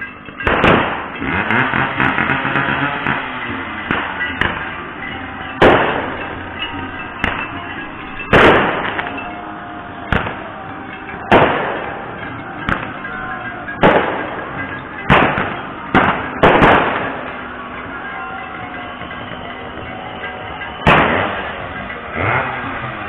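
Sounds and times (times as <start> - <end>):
fireworks bangs: 0.0 - 23.0
steady background din: 0.0 - 23.0.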